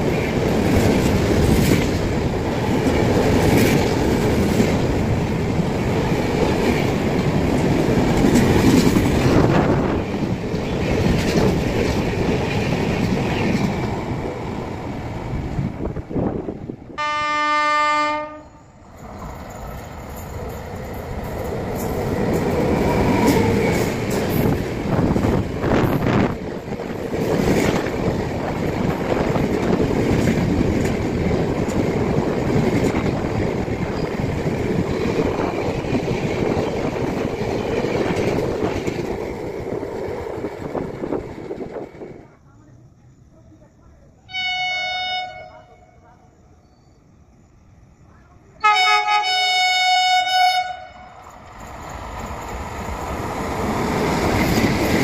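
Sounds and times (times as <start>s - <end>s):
locomotive horn blast: 17.0s - 18.6s, 44.3s - 45.9s, 48.6s - 51.1s
train wheels clattering past: 19.0s - 42.2s.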